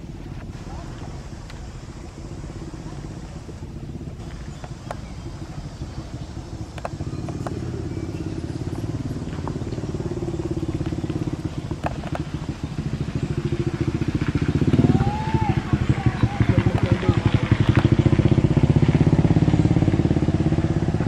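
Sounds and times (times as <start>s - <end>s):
engine running with fast pulse: 0.0s - 21.0s
faint sharp clicks: 6.7s - 7.6s.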